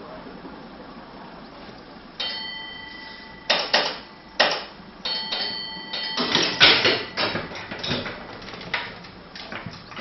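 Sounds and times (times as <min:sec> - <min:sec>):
bell ringing: 0:02.2 - 0:03.6, 0:05.0 - 0:07.4
sharp metallic clanks and knocks: 0:03.3 - 0:08.9.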